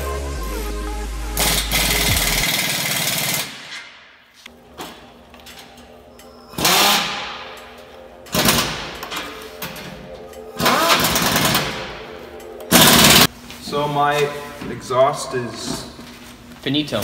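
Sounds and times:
pneumatic impact wrench bursts: 1.4 - 3.9, 6.6 - 7.2, 10.6 - 11.8, 12.7 - 13.3.

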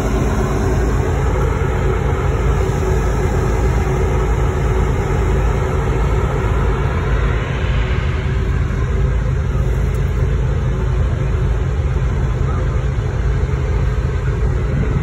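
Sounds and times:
faint steady hum: 0.0 - 15.0
ship engines rumbling: 0.0 - 15.0
wind on microphone: 14.4 - 15.0.

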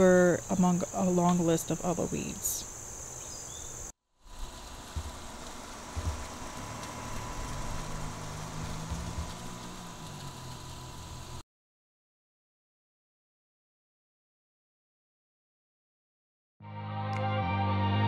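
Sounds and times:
insects buzzing: 0.0 - 11.4
vehicle engine hum: 4.3 - 11.4.

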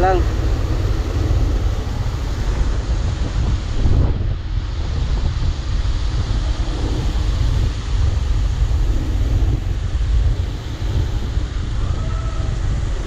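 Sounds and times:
wind buffeting microphone: 0.0 - 13.0
tyres hissing through water: 5.5 - 13.0.

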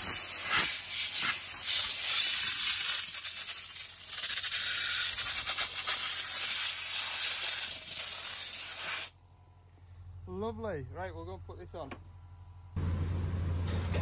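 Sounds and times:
compressed air blow gun hissing: 0.0 - 9.2.

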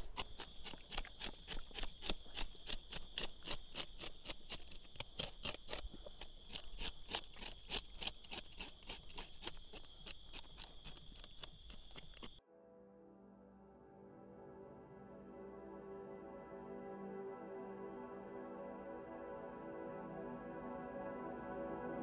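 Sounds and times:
knife scraping fish scales: 0.0 - 12.4.

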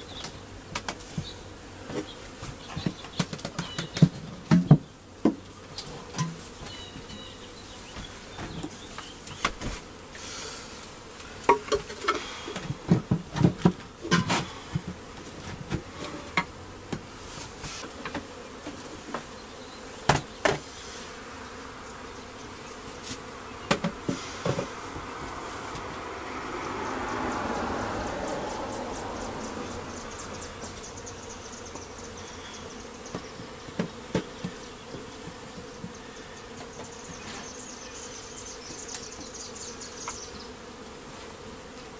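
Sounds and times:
honeybees buzzing: 0.0 - 41.9.

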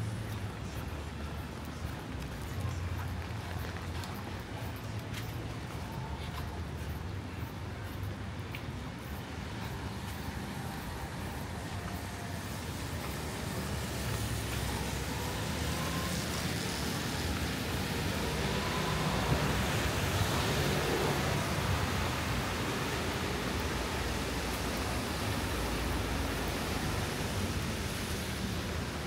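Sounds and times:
rain hiss on wet road: 9.2 - 29.0.

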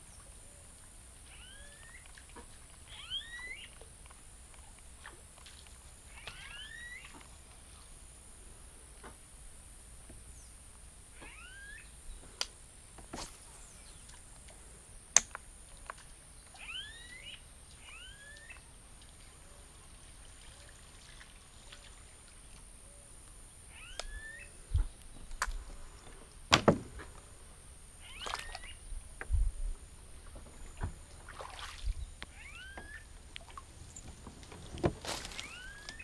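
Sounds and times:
faint outdoor background: 0.0 - 36.0
bird swooping calls: 1.3 - 2.0, 2.9 - 3.8, 6.1 - 7.1, 11.2 - 12.0, 23.7 - 24.6, 28.0 - 28.9, 32.3 - 33.1, 35.3 - 36.0.

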